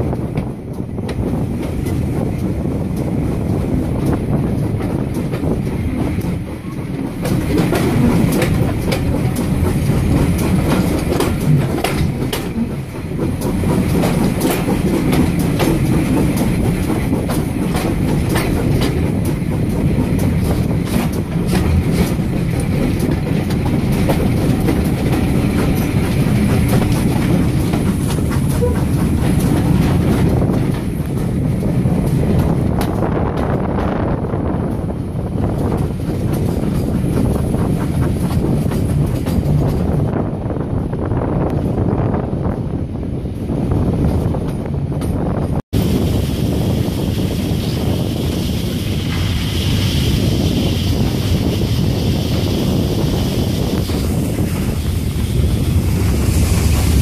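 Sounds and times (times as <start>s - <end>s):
wheels clicking over rail joints: 0.0s - 41.9s
train rumbling on track: 0.0s - 57.0s.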